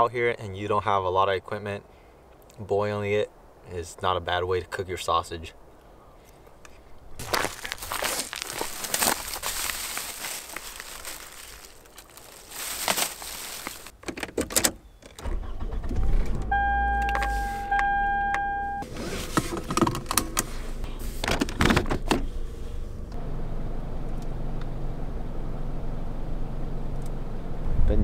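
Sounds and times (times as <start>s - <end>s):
car door and keys clattering: 12.1s - 15.3s
car warning chime: 16.5s - 18.8s
car engine running: 18.9s - 27.8s.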